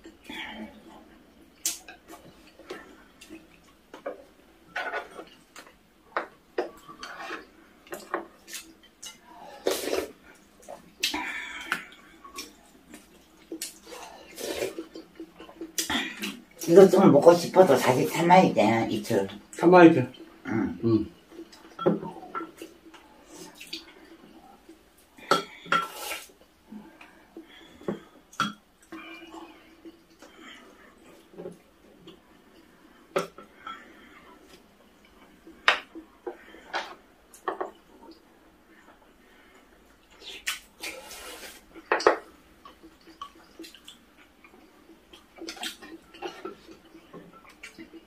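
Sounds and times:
wet eating and slurping: 0:06.8 - 0:16.5, 0:40.1 - 0:41.9.

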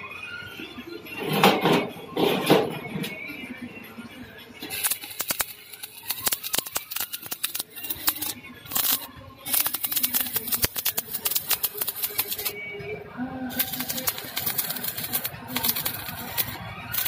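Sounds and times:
welding arc crackling: 0:04.7 - 0:12.6, 0:13.5 - 0:17.0.

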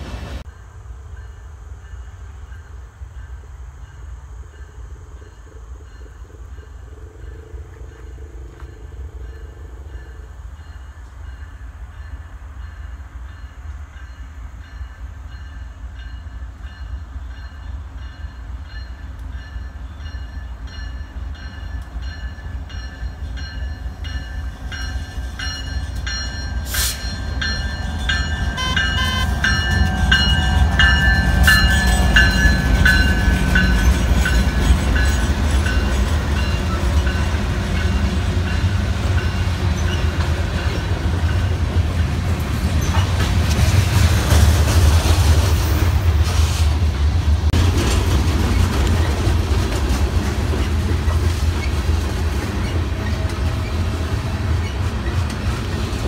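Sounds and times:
crossing bell ringing: 0:01.2 - 0:43.2
diesel locomotive rumble: 0:15.8 - 0:56.0.

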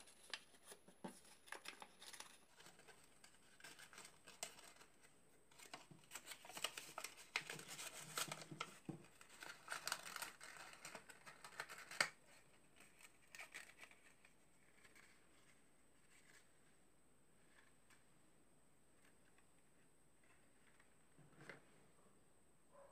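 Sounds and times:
paper rustling and crinkling: 0:00.0 - 0:16.7.

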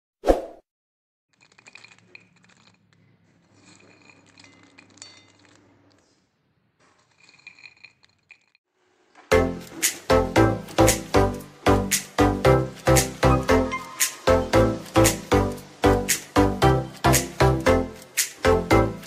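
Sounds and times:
pods clinking on ceramic plate: 0:01.4 - 0:06.2, 0:06.9 - 0:08.6.

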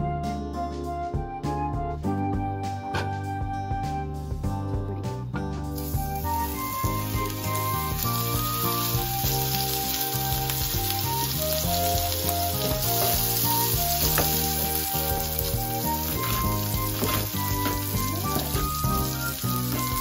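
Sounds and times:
background music: 0:00.0 - 0:20.0
meat sizzling in oil: 0:05.8 - 0:20.0.

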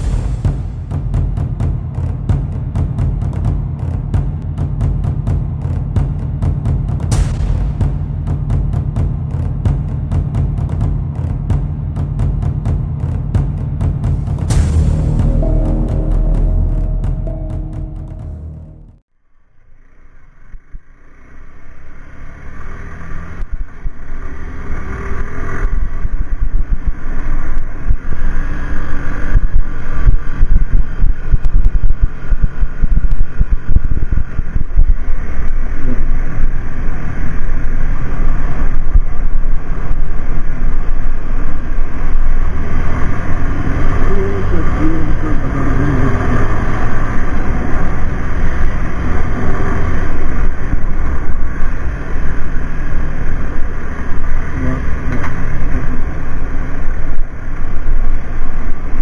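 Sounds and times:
motorcycle engine running: 0:00.0 - 0:19.0, 0:23.4 - 0:59.0
wind rumble on microphone: 0:25.6 - 0:59.0.

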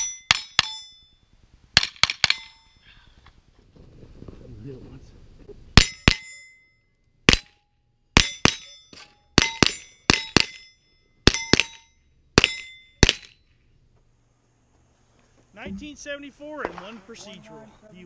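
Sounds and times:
steel target plate clanging: 0:00.0 - 0:01.2, 0:01.8 - 0:02.8, 0:05.8 - 0:13.5
rifle shots: 0:12.4 - 0:13.4.

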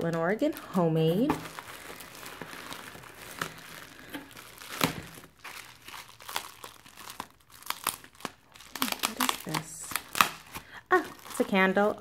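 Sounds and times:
bubble wrap crinkling: 0:00.0 - 0:12.0.

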